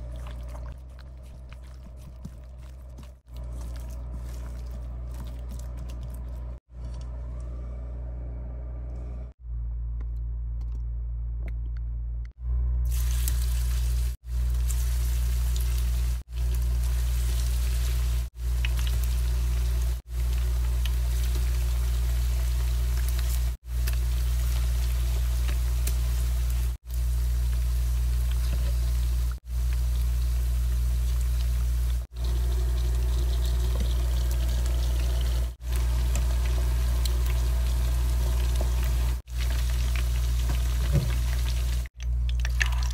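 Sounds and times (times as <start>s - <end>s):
low hum: 0.0s - 42.9s
chicken frying in oil: 12.9s - 42.9s.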